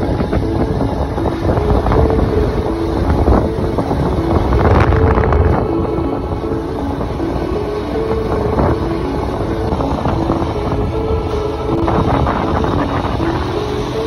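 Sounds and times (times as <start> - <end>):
vehicle rumble on road: 0.0 - 14.0
wind buffeting microphone: 0.0 - 14.0.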